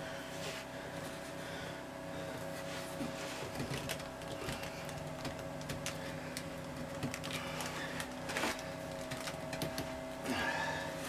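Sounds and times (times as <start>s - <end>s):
steady hum: 0.0s - 11.0s
tubing tapping and scraping on wood: 3.0s - 10.0s.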